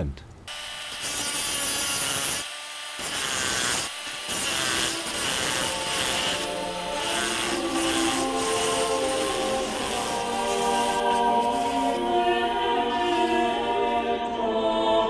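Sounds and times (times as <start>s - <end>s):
rotary tool grinding cement: 0.5s - 12.0s.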